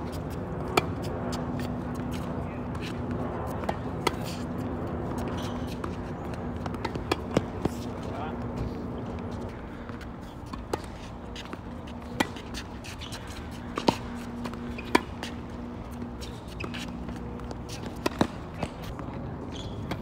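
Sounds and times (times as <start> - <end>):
tennis ball bouncing: 0.6 - 8.1, 9.1 - 19.0
racket striking tennis ball: 6.6 - 7.9, 10.5 - 15.6, 16.3 - 18.9.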